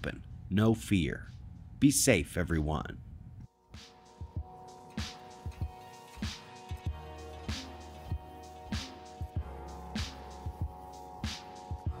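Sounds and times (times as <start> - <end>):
held chords: 3.5 - 12.0.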